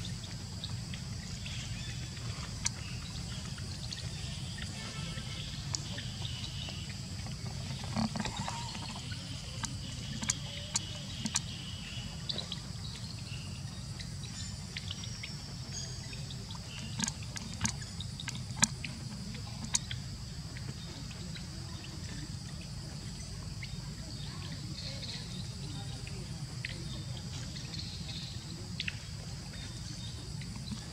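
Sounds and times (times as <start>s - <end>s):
insects droning: 0.0s - 30.9s
low steady rumble: 0.0s - 30.9s
sharp clicks and ticks: 7.8s - 11.6s, 16.6s - 20.0s.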